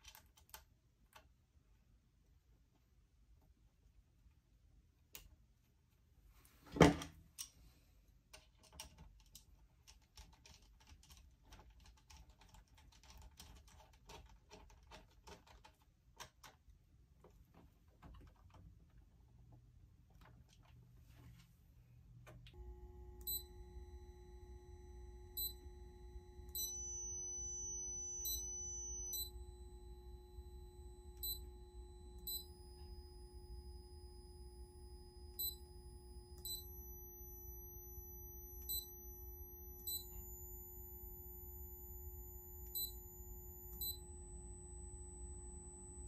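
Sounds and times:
low electrical hum: 11.0 - 46.0
high-pitched electronic whines: 22.6 - 46.0
steady mid tone: 22.6 - 46.0.

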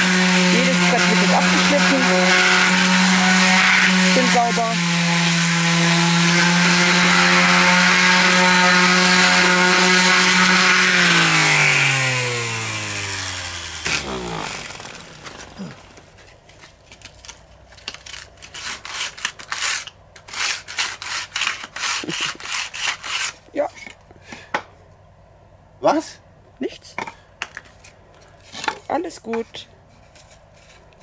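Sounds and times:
electric sander running: 0.0 - 16.1.

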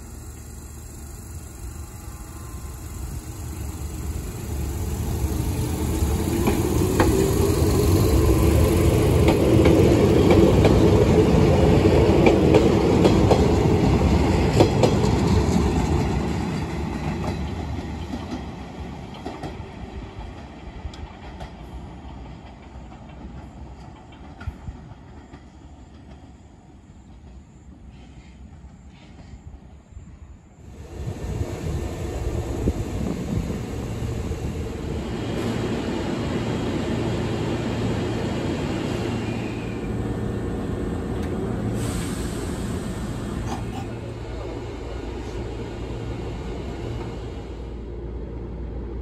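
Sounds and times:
electric train motor whine rising: 0.0 - 9.6
train wheels clacking over rail joints: 6.1 - 26.4.

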